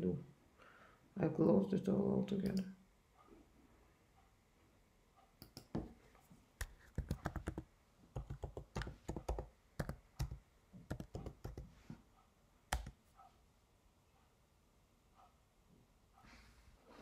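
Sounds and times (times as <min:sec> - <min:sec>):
typing on computer keyboard: 0:06.6 - 0:11.7, 0:12.7 - 0:13.0.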